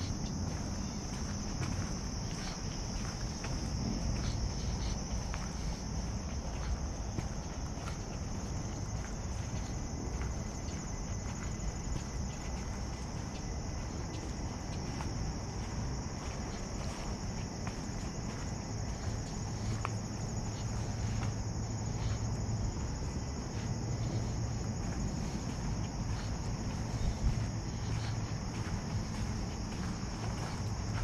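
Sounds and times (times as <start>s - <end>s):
footsteps on dirt path: 0.0s - 31.0s
insects chorus: 0.0s - 31.0s
low background rumble: 0.0s - 31.0s.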